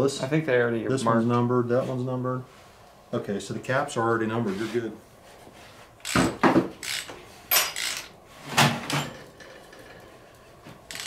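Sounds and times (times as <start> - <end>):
metal tools knocking and clinking: 6.8 - 8.1.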